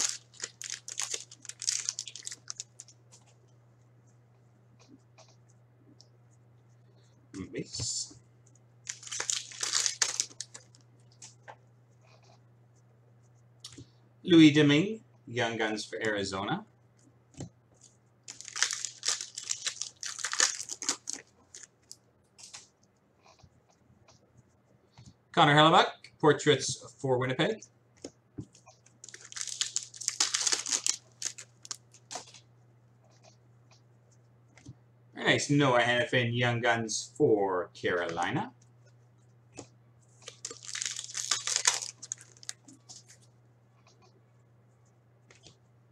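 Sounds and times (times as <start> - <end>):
wrapper crinkling as torn open: 0.0 - 3.0, 8.8 - 10.8, 18.3 - 22.6, 29.0 - 32.4, 40.2 - 43.1.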